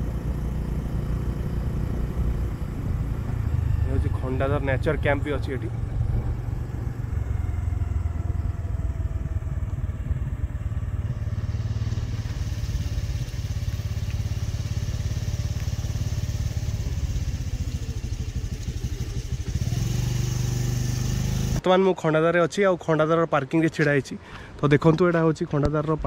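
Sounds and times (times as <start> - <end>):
vehicle engine rumbling: 0.0 - 21.6
road and air noise: 0.0 - 21.7, 23.8 - 26.0.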